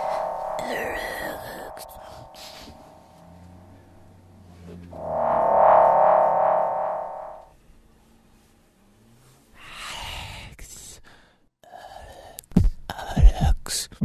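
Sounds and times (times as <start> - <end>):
breathy rush of noise: 0.0 - 3.1, 5.0 - 7.4
sustained orchestral chord: 0.0 - 3.2.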